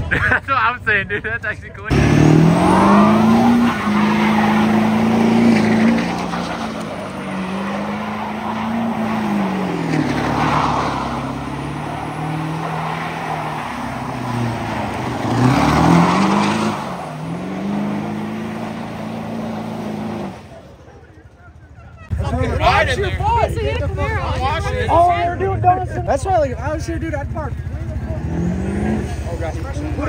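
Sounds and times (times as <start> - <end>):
car engine revving: 1.8 - 21.0, 23.8 - 30.0
tires spinning and skidding: 1.9 - 21.0.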